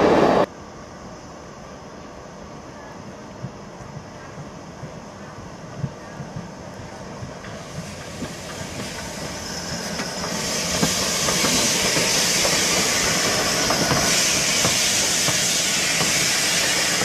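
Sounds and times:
steam hissing: 4.9s - 17.0s.

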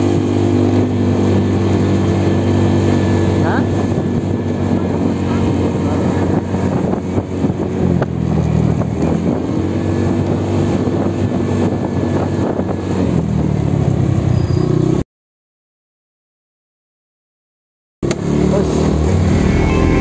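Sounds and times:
motorcycle engine running: 0.0s - 15.0s, 18.0s - 20.0s
wind buffeting microphone: 0.2s - 14.2s.

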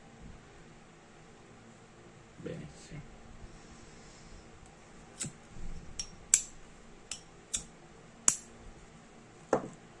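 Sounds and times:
lighter clicking: 8.3s - 8.5s.

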